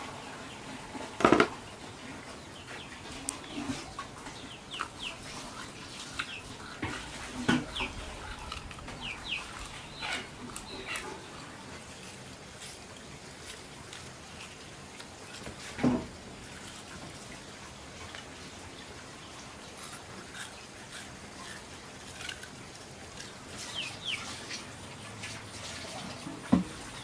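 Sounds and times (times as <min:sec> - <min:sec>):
chickens calling: 0:00.0 - 0:12.8, 0:23.2 - 0:27.0
knocks of household work: 0:01.0 - 0:01.6, 0:26.2 - 0:26.9.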